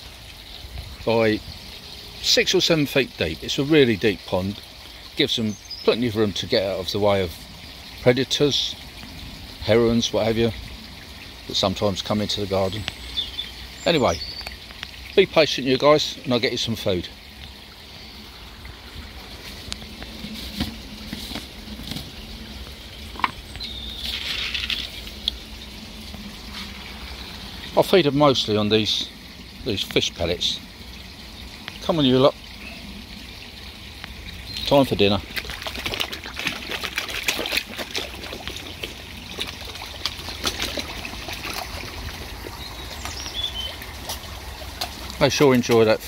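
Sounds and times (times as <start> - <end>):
water trickling into pond: 0.0 - 46.0
small splashes: 16.8 - 28.2, 31.5 - 46.0.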